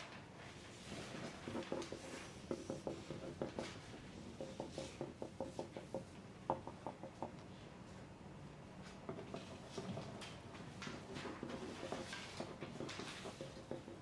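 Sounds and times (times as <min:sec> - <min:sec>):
pencils scratching on paper: 0:00.5 - 0:06.1, 0:08.9 - 0:14.0
pencil taps: 0:01.5 - 0:07.5, 0:10.8 - 0:14.0.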